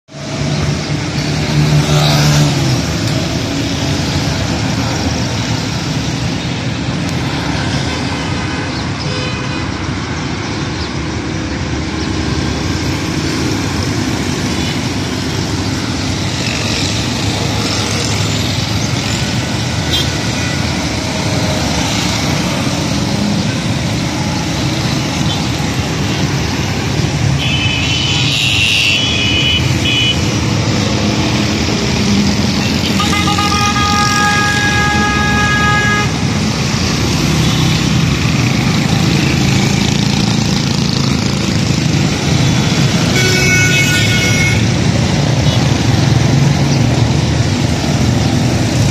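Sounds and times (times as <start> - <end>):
road traffic engines and tyres: 0.0 - 48.9
motorcycle passing: 0.2 - 6.0, 12.2 - 27.2.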